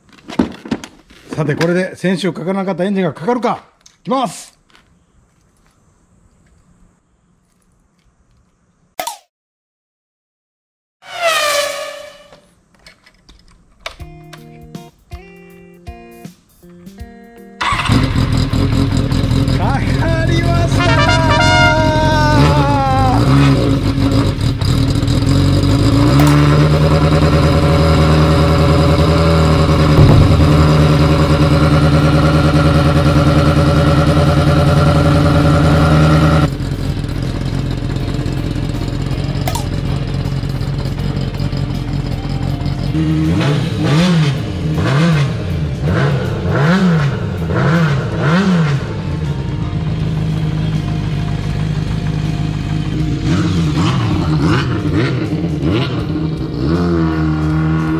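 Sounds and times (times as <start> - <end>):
engine revving: 17.6 - 40.9, 42.9 - 49.2, 50.1 - 57.9
motorcycle engine running: 17.6 - 57.9.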